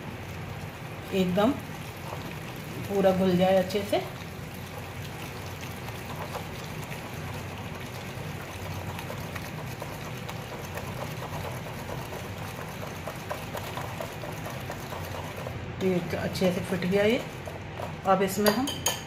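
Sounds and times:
whisk scraping a glass bowl: 8.5s - 19.0s.

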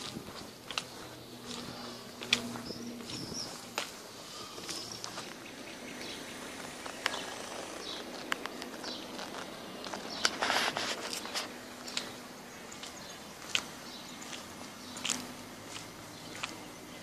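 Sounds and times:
boots clicking on pavement: 0.0s - 17.0s
outdoor ambience: 0.0s - 17.0s
short rustle: 6.8s - 12.2s.

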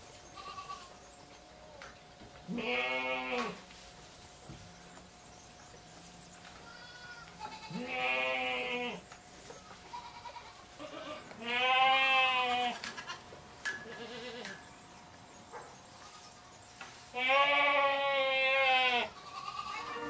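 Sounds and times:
goats bleating: 0.4s - 0.9s, 2.5s - 3.6s, 6.6s - 9.0s, 9.6s - 14.6s, 17.1s - 20.0s.

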